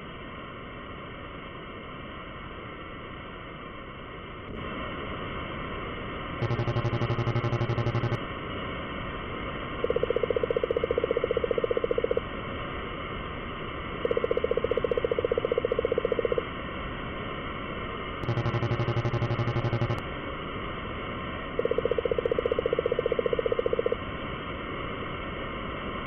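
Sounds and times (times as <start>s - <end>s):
higher-pitched blips: 6.4s - 8.2s, 18.2s - 20.0s
low buzzy blips: 6.4s - 8.2s, 18.2s - 20.0s
video game dialogue blips: 6.4s - 8.2s, 18.2s - 20.0s.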